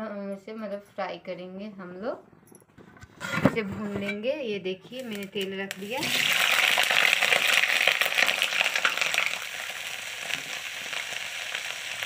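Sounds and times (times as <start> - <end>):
vegetables frying in hot oil: 5.0 - 12.0.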